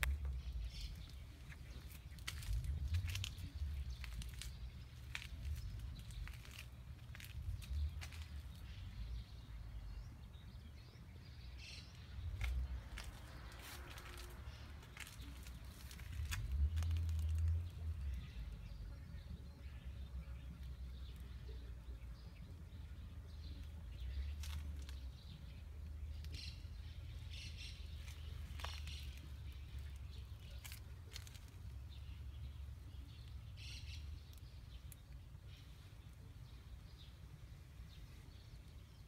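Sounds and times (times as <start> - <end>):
low rumble on microphone: 0.0 - 10.3
faint bird chirps: 32.0 - 37.2.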